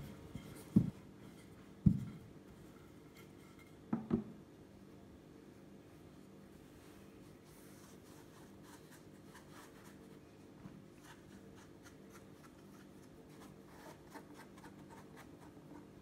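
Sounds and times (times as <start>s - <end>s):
low steady hum: 0.0s - 16.0s
fingertips brushing dough: 6.2s - 10.4s, 11.0s - 16.0s.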